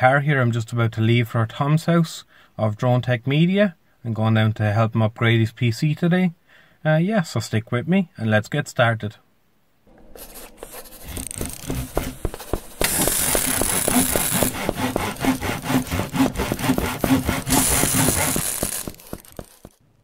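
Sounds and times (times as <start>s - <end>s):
saw sawing strokes: 10.0s - 19.8s.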